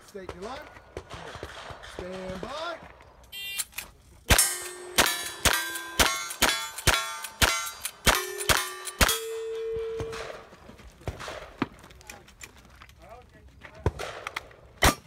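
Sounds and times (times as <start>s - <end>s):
lever-action rifle shots: 3.3s - 10.5s, 13.9s - 15.0s
steel target ringing clang: 4.3s - 10.5s.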